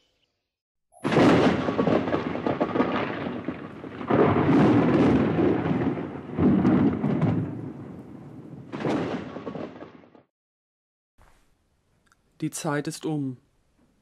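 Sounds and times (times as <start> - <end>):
thunder rolling: 1.0 - 10.3.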